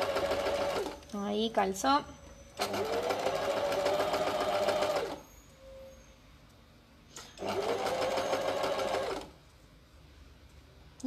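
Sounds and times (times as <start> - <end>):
sewing machine stitching: 0.0 - 1.0, 2.6 - 5.2, 7.2 - 9.4.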